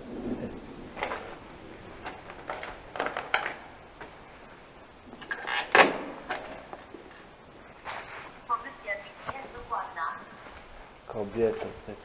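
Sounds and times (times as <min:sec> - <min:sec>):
bicycle clattering against a wall: 0:01.0 - 0:04.2, 0:05.2 - 0:06.9.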